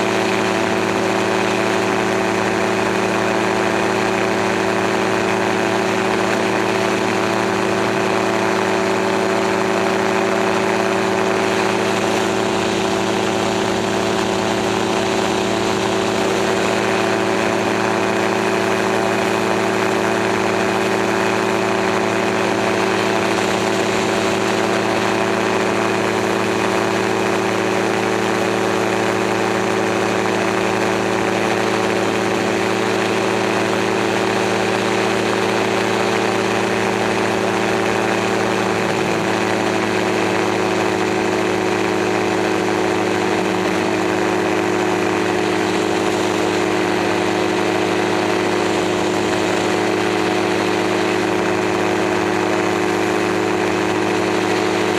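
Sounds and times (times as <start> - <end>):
gyroplane engine and propeller drone: 0.0 - 54.9.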